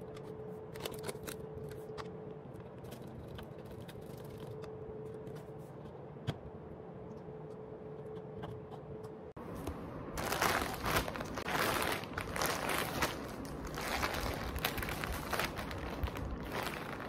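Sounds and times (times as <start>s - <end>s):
plastic packaging rustling: 9.6s - 17.0s.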